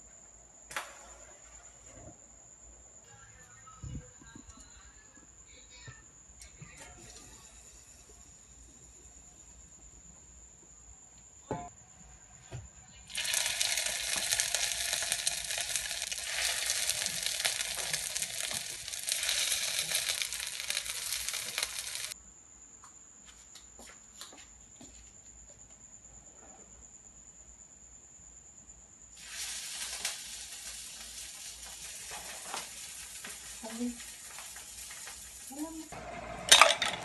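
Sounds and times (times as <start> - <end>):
dumplings sizzling in hot oil: 13.1 - 22.2, 29.2 - 36.6.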